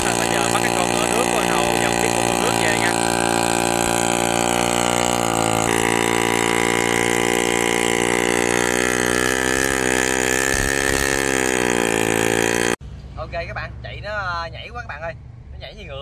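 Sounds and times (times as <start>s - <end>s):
boat engine running: 0.0s - 12.8s.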